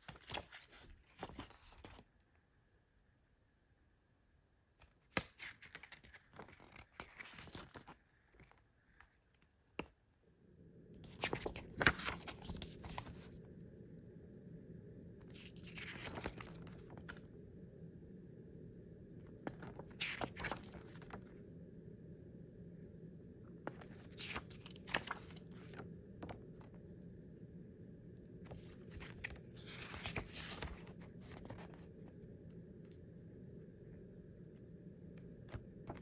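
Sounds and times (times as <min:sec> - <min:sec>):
paper rustling: 0:00.0 - 0:02.1, 0:04.9 - 0:09.2, 0:11.0 - 0:13.4, 0:15.3 - 0:17.3, 0:19.4 - 0:21.3, 0:23.7 - 0:26.8, 0:28.4 - 0:32.1, 0:35.4 - 0:36.0
low background hum: 0:00.0 - 0:36.0.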